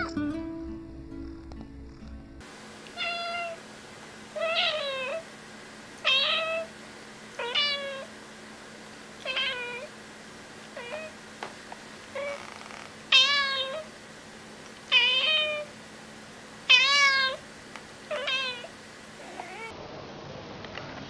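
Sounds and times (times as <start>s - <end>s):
cat meowing: 0.0s - 0.3s, 3.0s - 3.6s, 4.4s - 5.2s, 6.0s - 6.7s, 7.4s - 8.1s, 9.2s - 9.9s, 10.8s - 11.2s, 13.1s - 13.9s, 14.9s - 15.7s, 16.7s - 17.4s, 18.1s - 19.7s.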